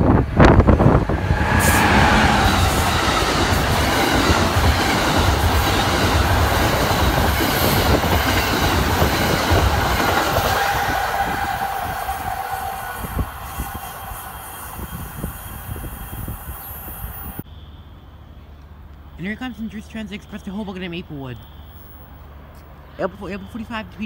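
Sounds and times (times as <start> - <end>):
high whine from wheels: 0.0 - 17.4
train rumbling over rails: 0.0 - 17.4.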